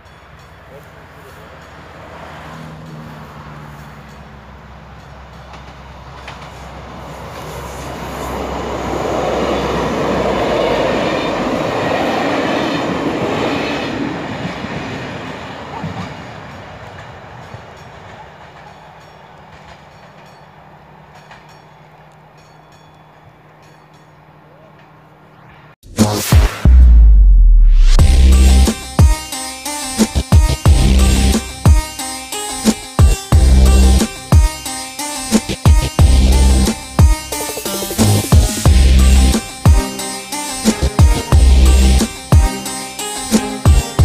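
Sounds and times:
train wheels rushing on rails: 0:00.0 - 0:22.8.

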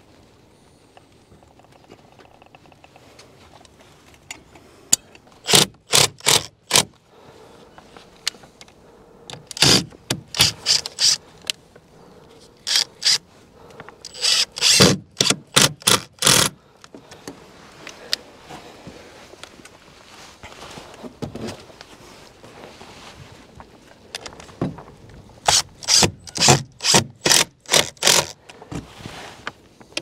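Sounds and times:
cordless drill boring into wood: 0:05.4 - 0:06.9, 0:09.5 - 0:11.2, 0:12.6 - 0:13.2, 0:14.1 - 0:16.6, 0:25.4 - 0:28.4.

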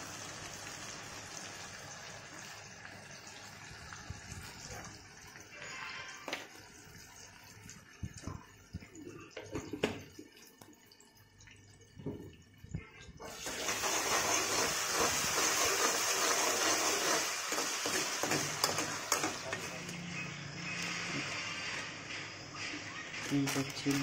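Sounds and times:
spoon scraping metal pan: 0:14.1 - 0:19.9.

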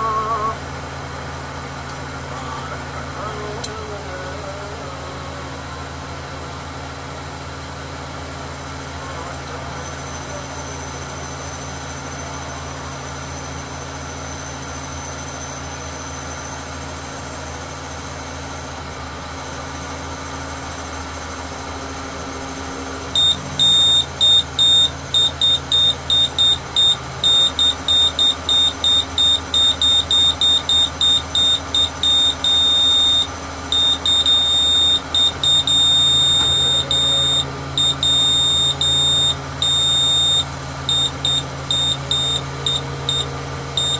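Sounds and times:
diesel engine running: 0:00.0 - 0:43.9
electronic warning beeper: 0:23.1 - 0:43.9.

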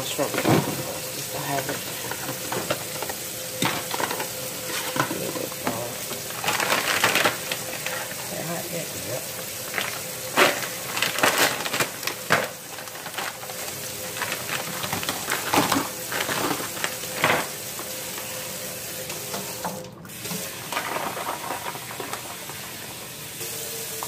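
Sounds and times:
plastic bag crinkling: 0:00.0 - 0:18.6.

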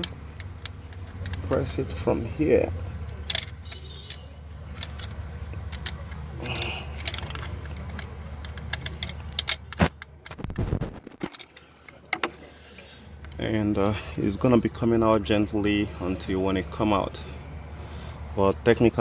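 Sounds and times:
metallic clicking and rattling: 0:00.0 - 0:02.2, 0:03.0 - 0:13.5.

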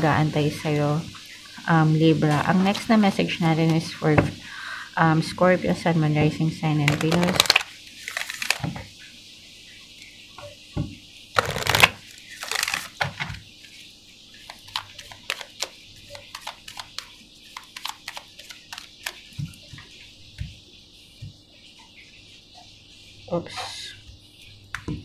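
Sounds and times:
playing cards being shuffled: 0:06.9 - 0:08.6, 0:11.4 - 0:13.1, 0:14.7 - 0:19.2.

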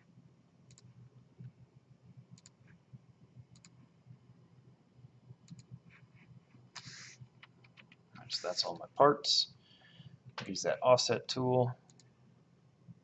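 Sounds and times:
faint low hum: 0:00.0 - 0:13.0
computer mouse clicking: 0:00.7 - 0:00.9, 0:02.3 - 0:02.6, 0:03.5 - 0:03.8, 0:05.4 - 0:05.8, 0:06.8 - 0:08.0, 0:11.9 - 0:12.1.

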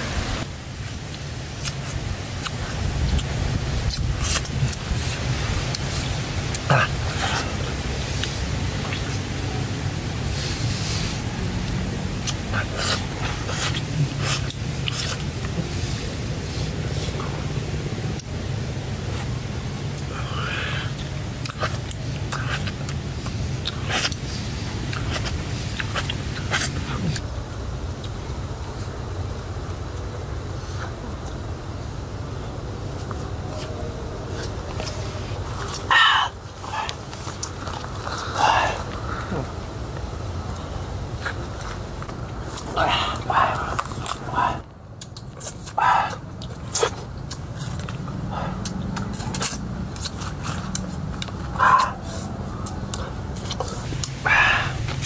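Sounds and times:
steady low rumble: 0:00.0 - 0:55.0
man chewing honeycomb: 0:00.8 - 0:31.5, 0:32.6 - 0:55.0
wet mouth smacks and sucks: 0:03.9 - 0:06.7, 0:12.2 - 0:15.6, 0:21.0 - 0:27.2, 0:48.6 - 0:54.2.

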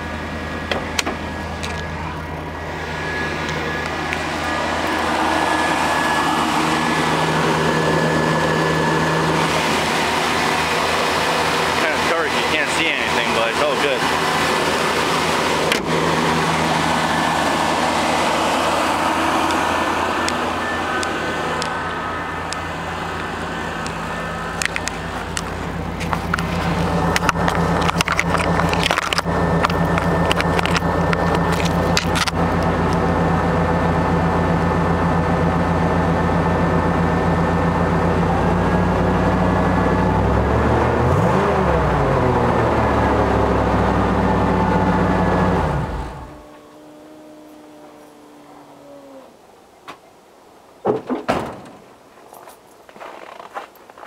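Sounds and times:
pickup truck engine idling: 0:00.0 - 0:40.2.

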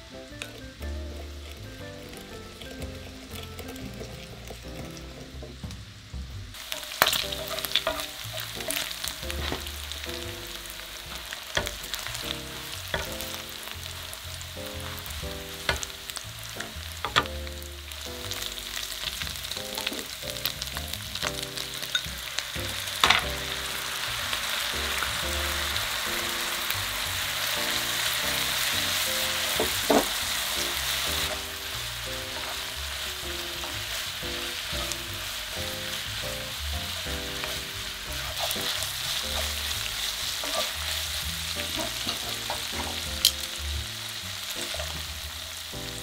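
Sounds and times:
pork and onion sizzling in pan: 0:00.0 - 0:46.0
utensil clicking and scraping pan: 0:00.4 - 0:05.6, 0:06.6 - 0:09.7, 0:18.8 - 0:20.6, 0:36.8 - 0:43.4.

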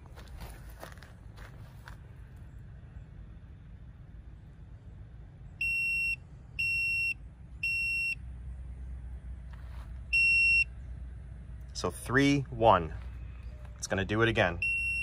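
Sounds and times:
multimeter high-pitched beeps: 0:14.6 - 0:15.0.

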